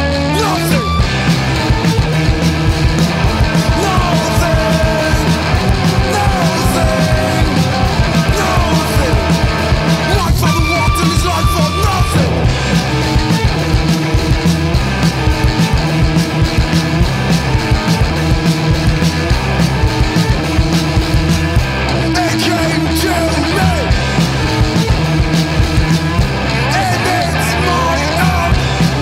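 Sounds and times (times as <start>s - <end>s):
rock music with drums and bass: 0.0s - 29.0s.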